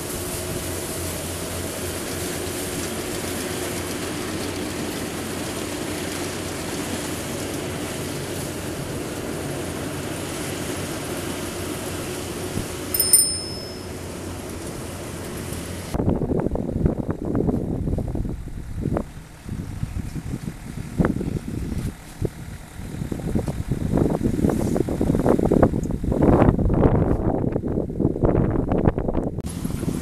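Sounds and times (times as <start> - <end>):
combine harvester running: 0.0 - 16.0, 17.4 - 25.6, 29.5 - 30.0
high-pitched ringing squeal: 13.0 - 14.1.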